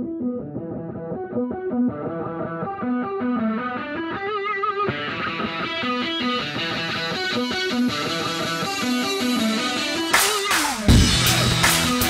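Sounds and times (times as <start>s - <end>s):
distorted electric guitar riff: 0.0s - 12.0s.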